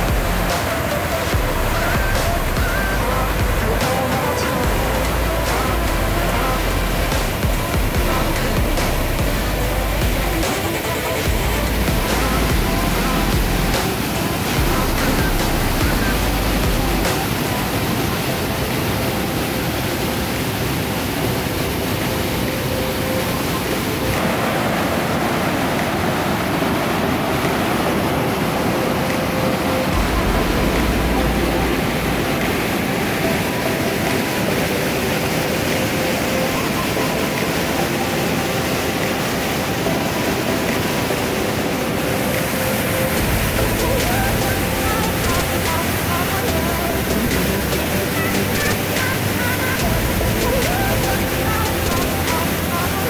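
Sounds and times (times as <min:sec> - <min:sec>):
water rushing down spillway: 0:00.0 - 0:53.0.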